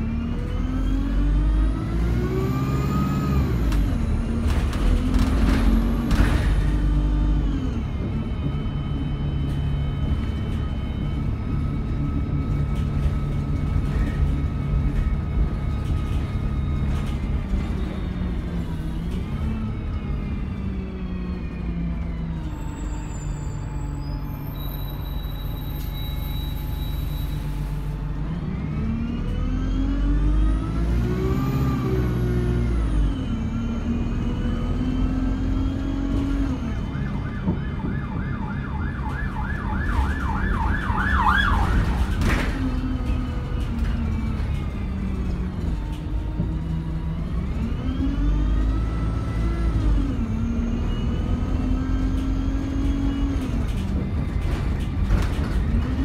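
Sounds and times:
bus engine and gearbox whine: 0:00.0 - 0:56.0
rapid warbling siren: 0:36.6 - 0:42.2.

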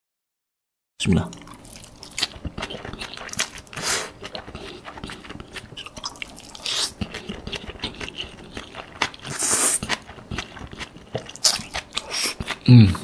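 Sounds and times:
wet chewing: 0:01.3 - 0:13.0
slurping noodles: 0:02.6 - 0:05.6, 0:06.2 - 0:13.0.

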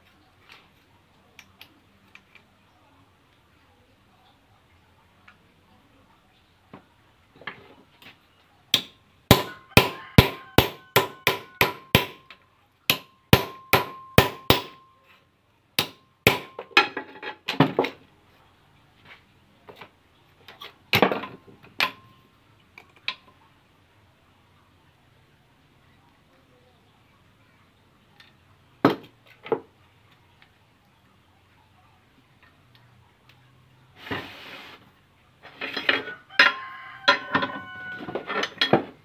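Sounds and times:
hammer striking steel: 0:08.7 - 0:12.3, 0:12.9 - 0:14.9, 0:15.8 - 0:17.0.

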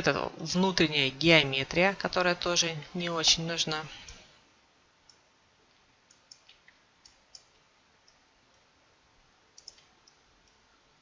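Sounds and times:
low background hiss: 0:00.0 - 0:11.0
computer mouse clicks: 0:06.1 - 0:08.7, 0:09.6 - 0:10.6.

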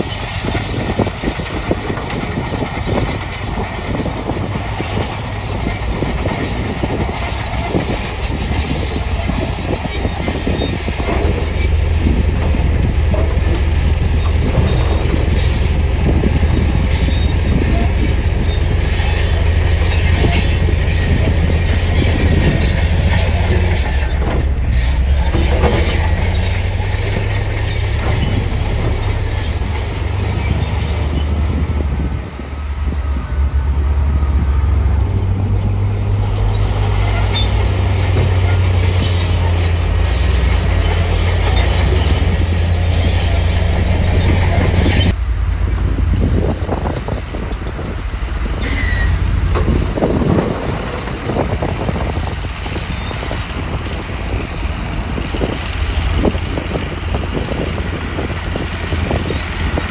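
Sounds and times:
diesel truck engine rumbling: 0:00.0 - 0:59.9
soil and rock tipping out: 0:00.0 - 0:59.9
scattered knocks: 0:04.5 - 0:24.5.

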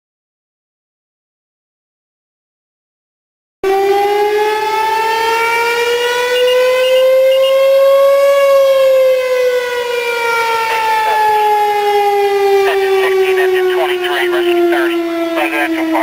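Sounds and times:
fire station siren wailing: 0:03.6 - 0:16.0.

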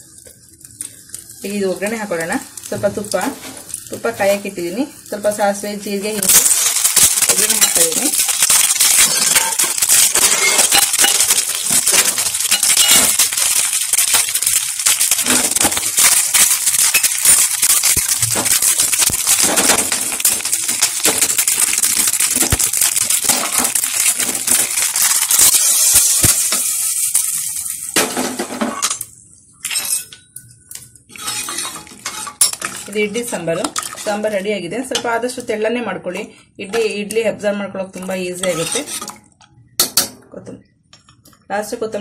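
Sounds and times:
seeds crackling in hot oil: 0:00.0 - 0:29.1, 0:30.7 - 0:35.6, 0:37.8 - 0:39.2.

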